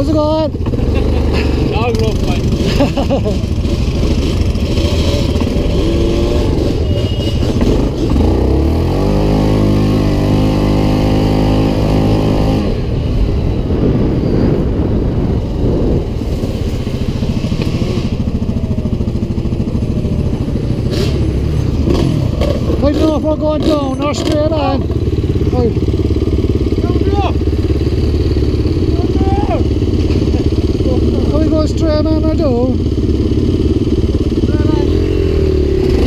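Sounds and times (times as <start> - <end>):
quad bike engine revving: 0.0 - 36.0.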